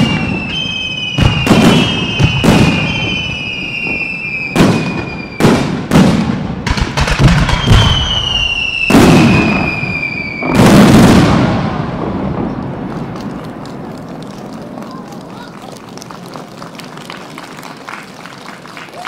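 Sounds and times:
firework booms: 0:00.0 - 0:15.3
firework whistles sliding down: 0:07.4 - 0:10.7.

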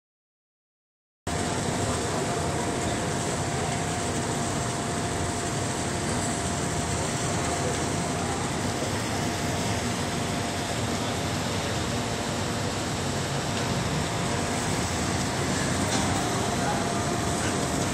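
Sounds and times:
machinery droning: 0:01.3 - 0:17.9
mid-pitched whine: 0:01.3 - 0:17.9.

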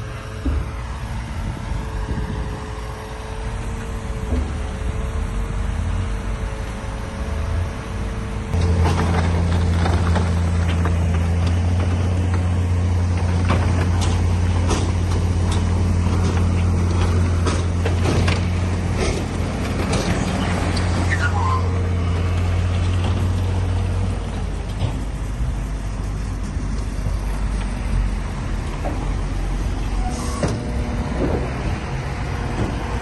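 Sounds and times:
diesel earthmoving machinery running: 0:00.0 - 0:33.0
knocks and clanks: 0:04.2 - 0:05.0, 0:08.5 - 0:21.1, 0:24.3 - 0:25.4, 0:30.4 - 0:33.0.

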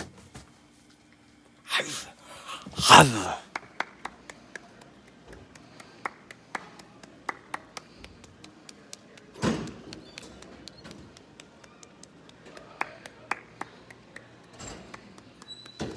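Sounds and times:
brief vocal sound: 0:01.7 - 0:03.4
person clapping slowly: 0:02.9 - 0:15.9.

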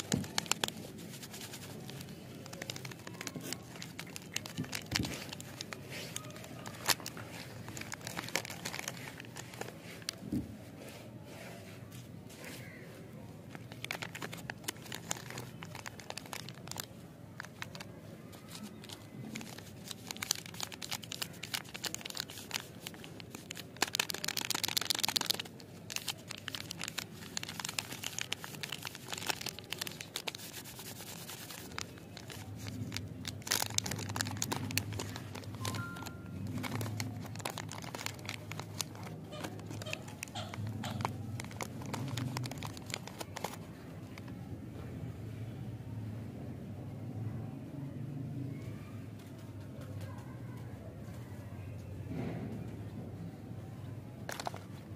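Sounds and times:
plastic wrapper crinkling and tearing: 0:00.0 - 0:10.4, 0:13.4 - 0:44.4, 0:54.2 - 0:54.9.

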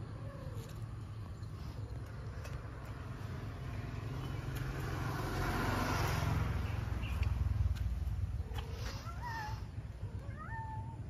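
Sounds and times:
vehicle driving past: 0:01.6 - 0:09.0.

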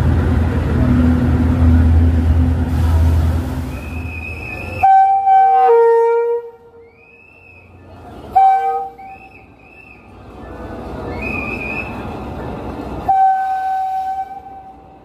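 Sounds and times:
train rumble: 0:00.0 - 0:15.0
train horn blast: 0:04.8 - 0:06.8, 0:08.3 - 0:09.2, 0:13.0 - 0:14.9.

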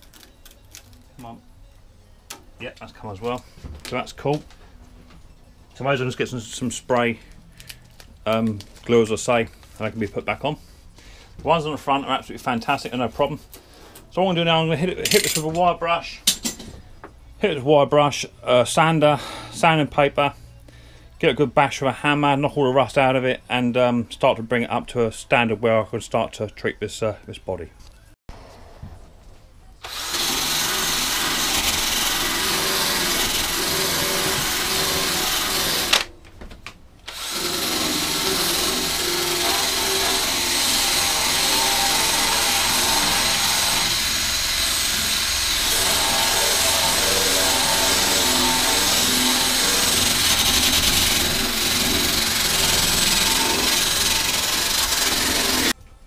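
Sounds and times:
drill wire brush scouring metal: 0:29.8 - 0:36.1, 0:37.1 - 0:55.8.

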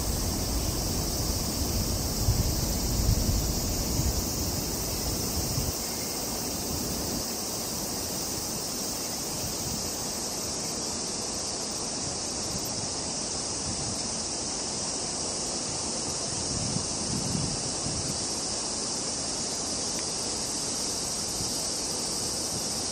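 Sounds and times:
wind rumble on microphone: 0:00.0 - 0:07.3, 0:13.5 - 0:14.1, 0:16.2 - 0:18.4
cicada chorus droning: 0:00.0 - 0:22.9.

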